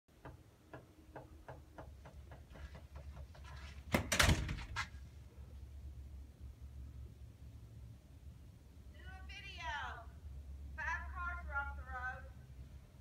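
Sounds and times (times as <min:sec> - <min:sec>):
door clicks: 0:03.9 - 0:04.8
door banging shut: 0:03.9 - 0:04.9.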